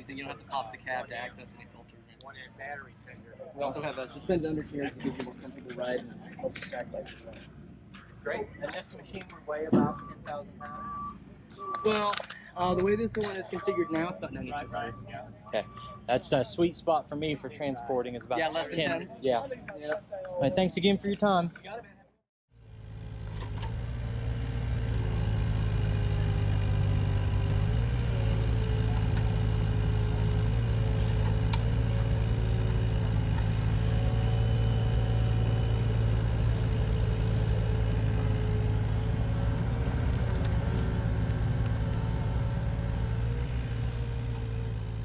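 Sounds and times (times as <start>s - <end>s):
heavy equipment engine running: 22.6s - 45.0s.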